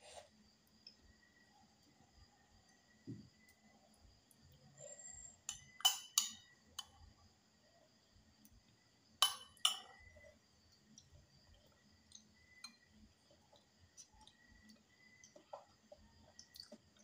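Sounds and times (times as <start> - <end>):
clinks against glass tableware: 5.5 - 6.5, 9.2 - 10.0.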